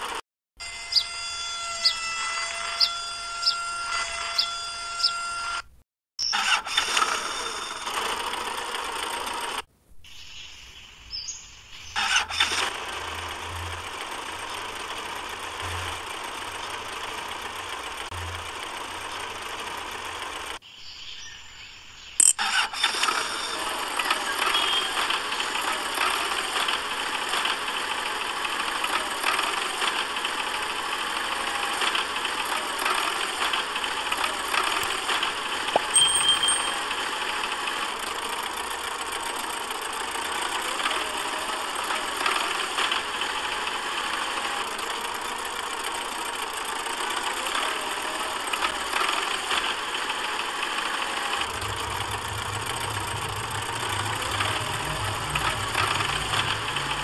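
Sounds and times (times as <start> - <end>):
motor droning: 0.0 - 5.7, 22.6 - 57.0
deeper hum: 51.4 - 57.0.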